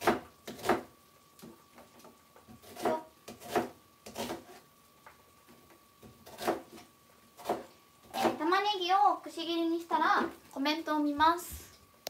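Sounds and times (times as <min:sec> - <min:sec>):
knife chopping on cutting board: 0:00.0 - 0:00.9, 0:02.5 - 0:04.6, 0:06.0 - 0:08.4.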